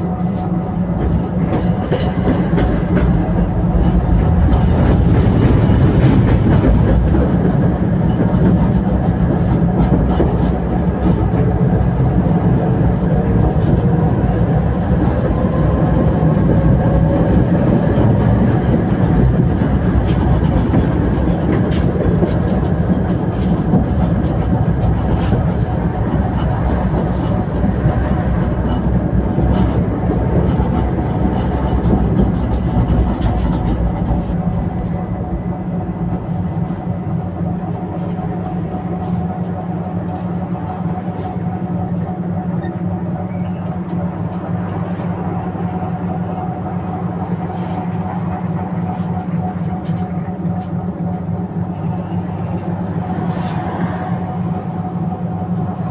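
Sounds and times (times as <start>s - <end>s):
tram rolling along rails: 0.0s - 55.9s
sharp clicks of tram wheels: 0.3s - 34.4s.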